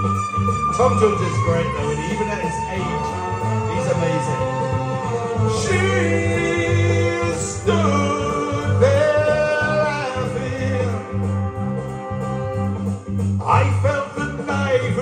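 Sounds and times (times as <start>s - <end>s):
karaoke backing track: 0.0s - 15.0s
man singing into microphone: 1.4s - 11.1s, 13.4s - 15.0s.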